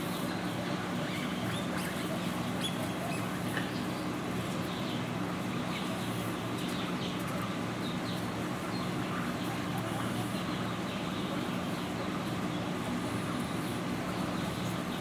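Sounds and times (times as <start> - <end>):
steady low hum: 0.0 - 15.0
guinea pigs squeaking: 1.1 - 4.0.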